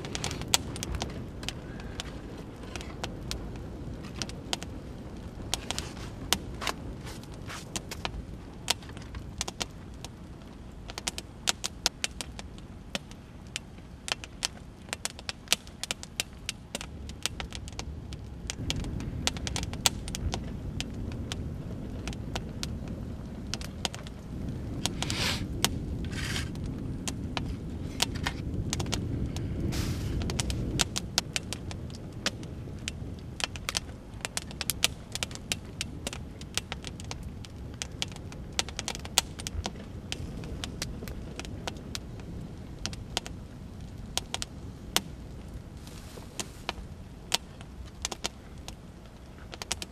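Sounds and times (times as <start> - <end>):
low rumble: 0.0 - 10.8, 16.8 - 47.9
campfire crackling and popping: 0.0 - 49.9
short scraping sounds: 24.9 - 25.5, 26.1 - 26.6, 29.7 - 30.2.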